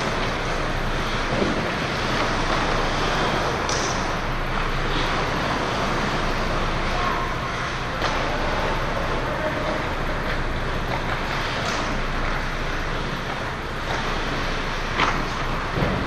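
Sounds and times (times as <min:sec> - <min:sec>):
steady rush of arena noise: 0:00.0 - 0:16.0.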